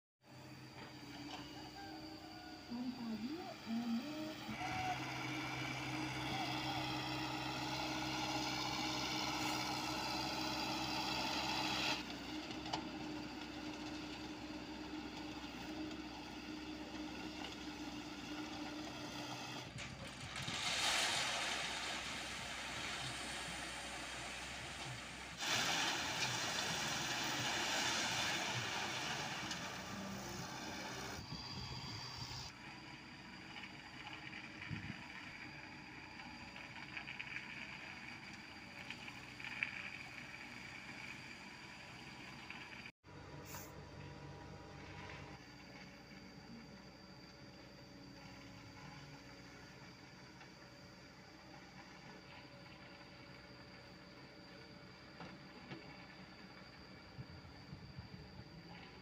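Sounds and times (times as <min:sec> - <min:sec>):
excavator diesel engine: 0:00.3 - 0:49.7
concrete mixer truck engine: 0:00.3 - 0:59.0.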